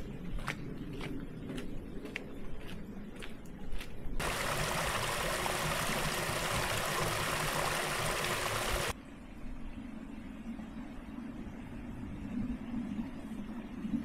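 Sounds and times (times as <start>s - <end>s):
brook splashing: 4.2s - 8.9s.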